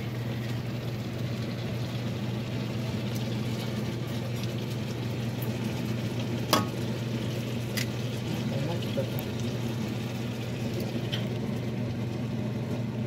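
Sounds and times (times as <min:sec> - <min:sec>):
food sizzling in a frying pan: 0:00.0 - 0:12.9
steady low hum: 0:00.0 - 0:13.0.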